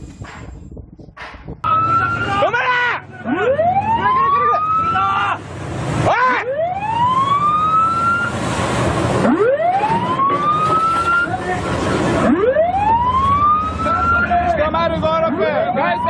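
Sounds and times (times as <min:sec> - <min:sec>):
ship's siren wailing: 0:01.7 - 0:16.0
rush of water and wind: 0:05.4 - 0:13.4.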